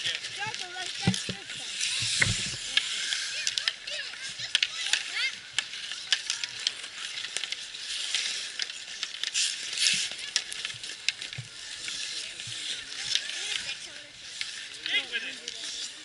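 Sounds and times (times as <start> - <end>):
hockey sticks clacking on puck: 0.0 - 16.0
skate blades scraping ice: 0.0 - 16.0.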